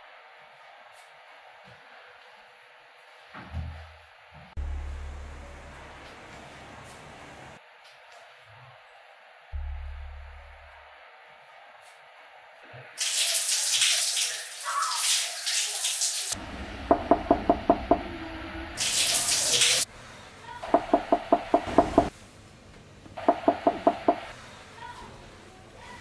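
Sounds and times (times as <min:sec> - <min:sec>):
shower water hissing: 0:04.6 - 0:07.6, 0:12.8 - 0:22.4, 0:23.2 - 0:24.8
fist knocking on wooden door: 0:16.8 - 0:18.2, 0:20.6 - 0:22.1, 0:23.2 - 0:24.3.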